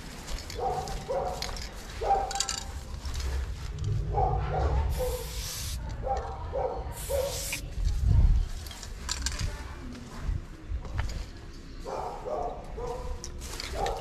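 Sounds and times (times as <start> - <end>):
spray bottle hissing: 5.0 - 5.8, 7.0 - 7.6.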